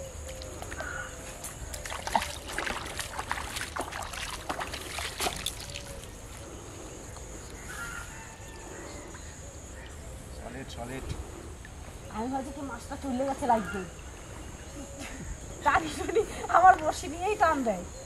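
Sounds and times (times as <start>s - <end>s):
fish splashing in water: 0.0s - 6.4s.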